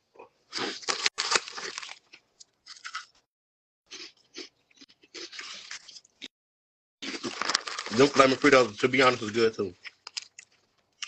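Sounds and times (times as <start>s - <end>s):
crunchy chips chewed: 0.5s - 3.2s, 3.9s - 6.3s, 7.0s - 11.0s
plastic bag crinkling: 7.1s - 9.4s.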